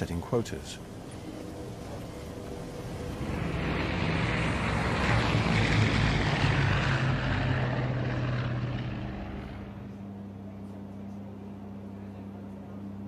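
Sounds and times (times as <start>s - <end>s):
propeller aircraft flying past: 0.7s - 10.8s.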